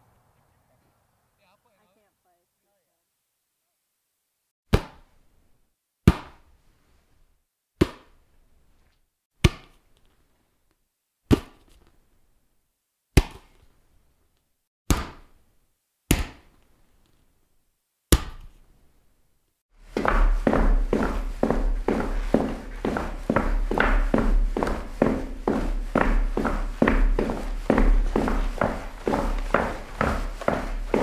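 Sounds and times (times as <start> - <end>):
hand slapping volleyball: 4.7 - 5.1, 6.0 - 6.5, 7.8 - 8.2, 9.4 - 9.9, 11.3 - 11.8, 13.1 - 13.7, 14.9 - 15.4, 16.1 - 16.7, 18.1 - 18.6.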